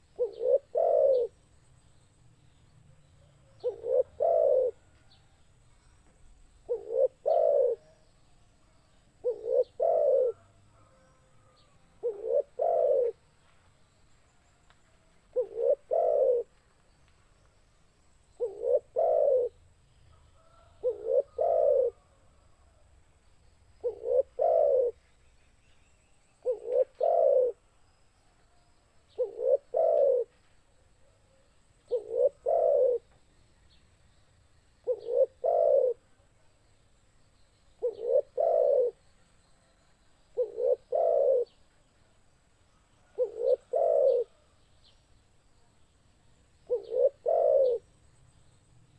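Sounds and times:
dove cooing: 0.0 - 1.4, 3.4 - 4.9, 6.6 - 8.0, 9.2 - 13.2, 15.3 - 16.5, 18.4 - 19.6, 20.4 - 22.2, 23.8 - 25.0, 26.4 - 27.6, 29.1 - 30.3, 31.8 - 33.1, 34.8 - 36.1, 37.8 - 39.0, 40.4 - 41.6, 43.0 - 44.5, 46.7 - 47.9.

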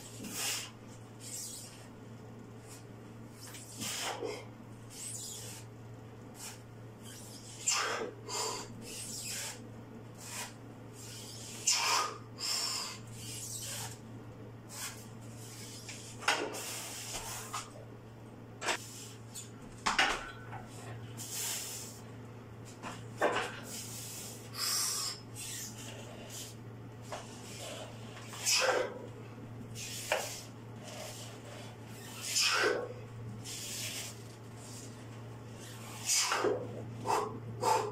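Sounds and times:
heavy forceful breaths: 36.0 - 37.9.

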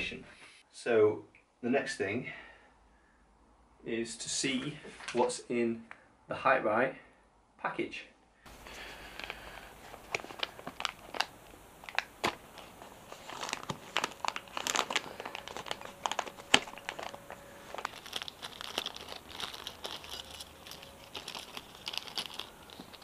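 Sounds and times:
packaging crinkling: 8.5 - 23.0.

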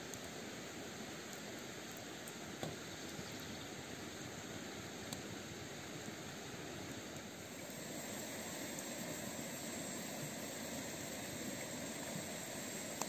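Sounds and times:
fire hissing in stove: 3.9 - 13.0.

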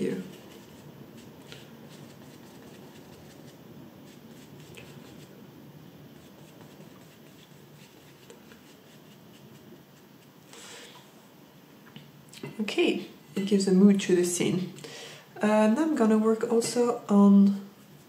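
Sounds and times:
paintbrush brushing on paper: 0.0 - 5.4, 6.1 - 10.4.

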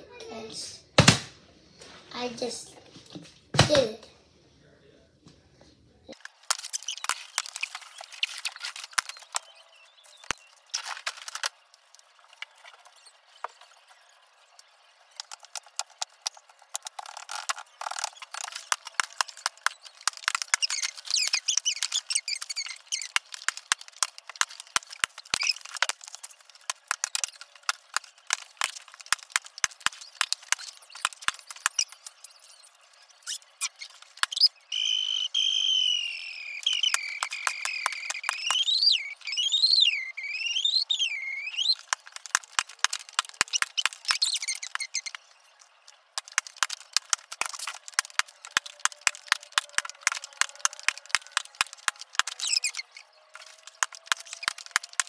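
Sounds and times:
plastic bottle crinkling: 6.2 - 9.5, 41.6 - 55.0.

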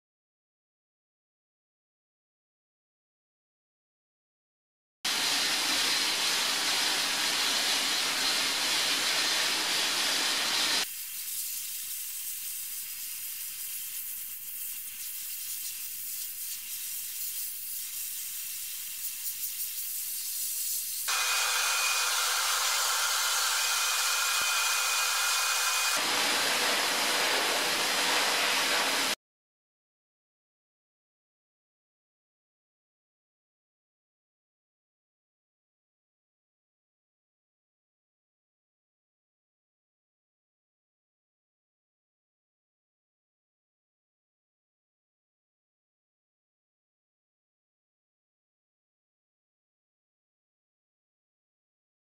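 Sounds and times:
shot-blasting nozzle hissing: 5.1 - 29.2.

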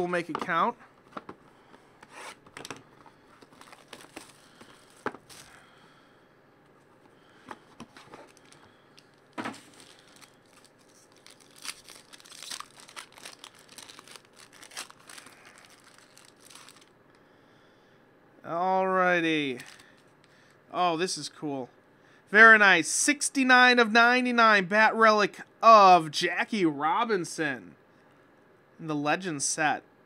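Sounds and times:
foil wrapper crinkling: 3.2 - 5.6, 7.8 - 16.9, 19.5 - 20.0
plastic wrap crinkling and tearing: 3.3 - 5.6, 7.9 - 16.9, 19.6 - 20.0.

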